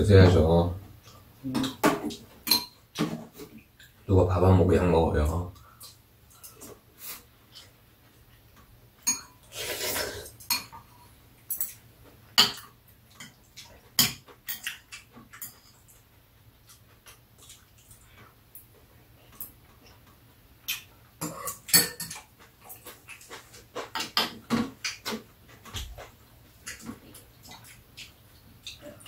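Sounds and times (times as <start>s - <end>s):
spoon and chopsticks clinking on bowls: 2.4s - 2.8s, 9.0s - 9.4s, 11.5s - 11.8s, 20.7s - 23.0s.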